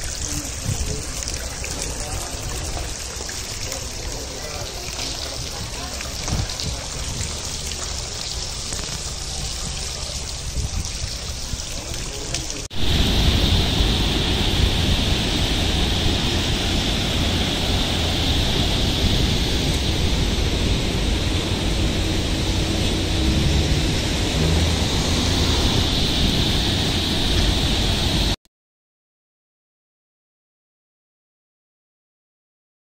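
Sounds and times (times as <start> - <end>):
water trickling and splashing: 0.0 - 28.4
wind rumbling on microphone: 0.1 - 3.0, 5.2 - 28.4
outdoor rushing noise: 12.7 - 28.4.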